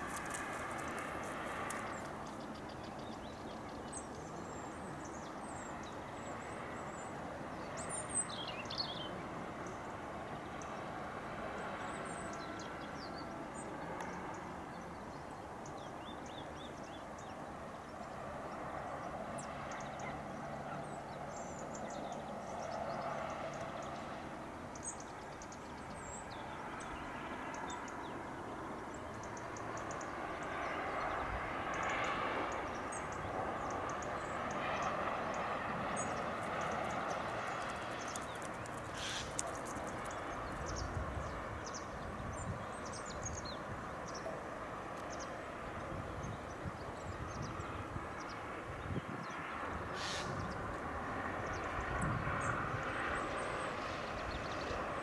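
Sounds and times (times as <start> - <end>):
outdoor background noise: 0.0 - 55.0
small birds chirping: 11.6 - 50.8.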